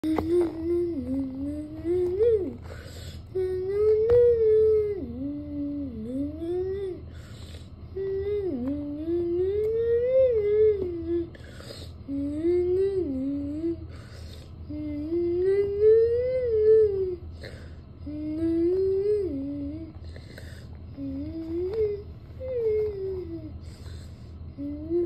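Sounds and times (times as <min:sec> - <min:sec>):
person humming: 0:00.0 - 0:14.1, 0:14.7 - 0:20.3, 0:20.9 - 0:25.0
breaths: 0:02.6 - 0:03.4, 0:07.0 - 0:07.9, 0:11.3 - 0:12.1, 0:13.8 - 0:14.6, 0:17.3 - 0:18.0, 0:20.0 - 0:20.9, 0:23.6 - 0:24.5.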